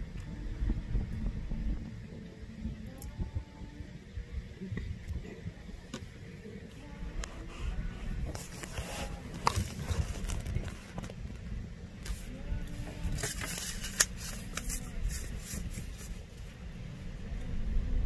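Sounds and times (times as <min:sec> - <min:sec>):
faint distant voices: 0:00.0 - 0:18.0
wind rumbling on microphone: 0:00.0 - 0:18.0.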